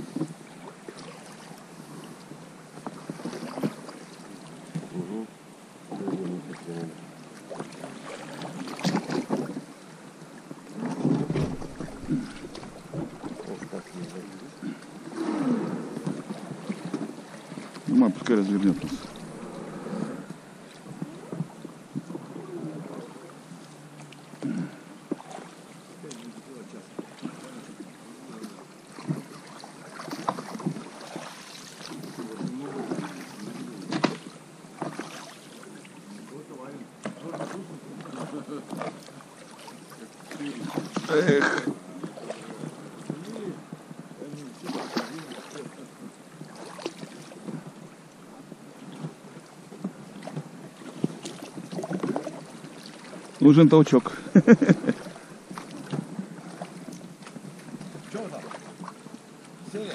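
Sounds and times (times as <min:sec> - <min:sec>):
oar strokes splashing: 0:00.0 - 0:59.9
water gurgling around boat: 0:00.0 - 0:59.9
river current rushing: 0:06.5 - 0:21.3
knocks against boat: 0:10.9 - 0:13.8, 0:33.9 - 0:34.2.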